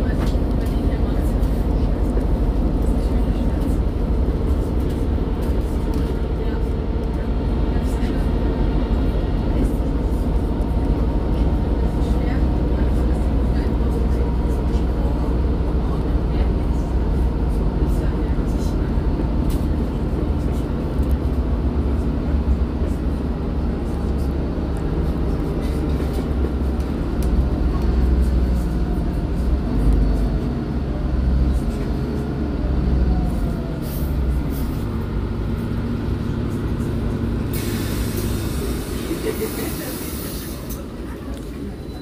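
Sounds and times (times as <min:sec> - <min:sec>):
bus engine humming: 0:00.0 - 0:42.0
hiss: 0:37.5 - 0:40.8.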